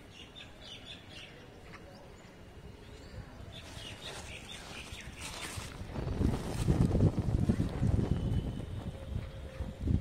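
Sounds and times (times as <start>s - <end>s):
birds chirping: 0.0s - 5.8s
low outdoor background noise: 0.0s - 10.0s.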